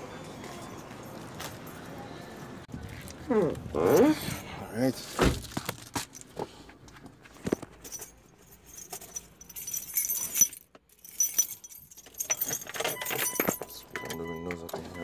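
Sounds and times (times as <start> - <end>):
keys jangling: 7.6 - 15.0.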